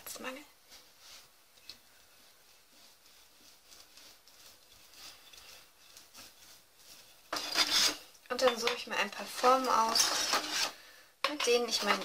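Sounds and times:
glass bottle rolling over dough: 7.1 - 8.8, 9.4 - 12.0.

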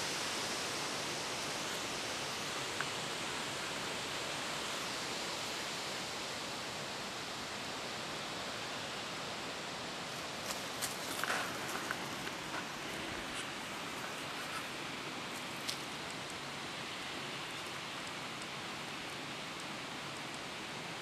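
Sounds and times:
steady hiss: 0.0 - 21.0
cat moving over dry leaves: 10.0 - 16.4.

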